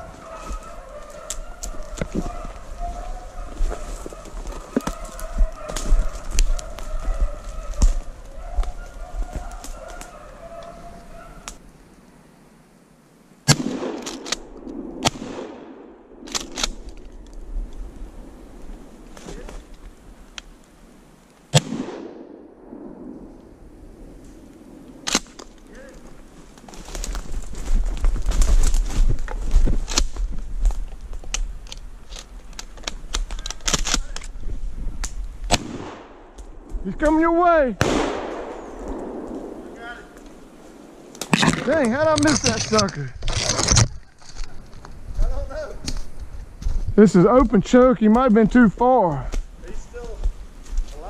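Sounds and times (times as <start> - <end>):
footsteps crunching through snow: 0.0 - 11.4, 25.8 - 31.3, 40.4 - 47.6, 49.3 - 51.0
twigs snapping: 0.0 - 11.6, 16.2 - 17.8, 25.0 - 37.1
branches brushing past: 0.0 - 11.7, 16.2 - 20.7, 23.1 - 51.0
shotgun shots: 13.5 - 16.8, 21.5 - 22.8, 35.5 - 36.2, 37.8 - 40.0.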